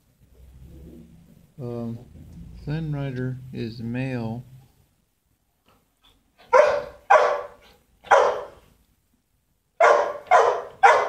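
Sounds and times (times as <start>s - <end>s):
dog barking: 6.4s - 8.7s, 9.8s - 11.0s.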